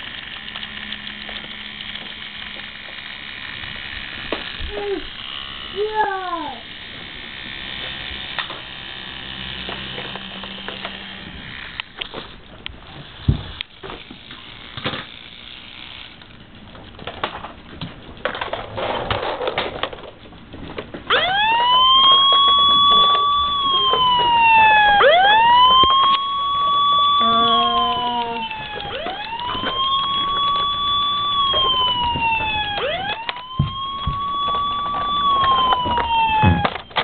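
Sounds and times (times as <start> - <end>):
clicks and handling noise: 9.5 - 37.0
toy truck electronic siren: 21.1 - 37.0.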